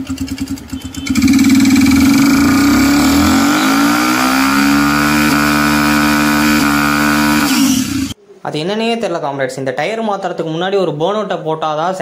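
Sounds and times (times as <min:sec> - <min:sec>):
motorcycle engine revving hard: 0:00.0 - 0:08.2
tyre spinning on road: 0:00.1 - 0:08.2.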